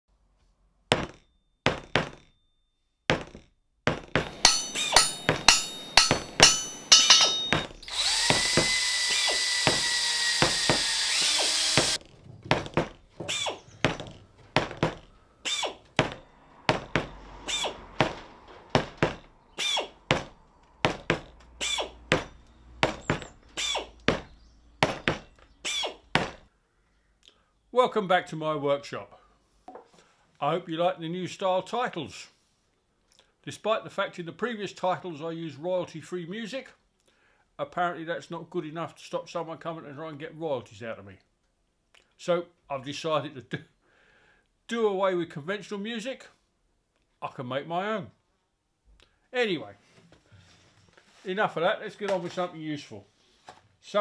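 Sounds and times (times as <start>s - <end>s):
hammer blows on metal: 4.1s - 9.0s
whining power tool: 4.1s - 12.1s, 14.8s - 24.3s.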